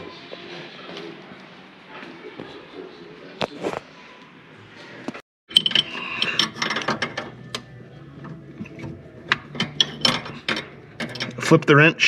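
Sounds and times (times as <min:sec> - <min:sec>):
wrench metal clicks and ratcheting: 0:05.5 - 0:07.7, 0:09.3 - 0:11.6.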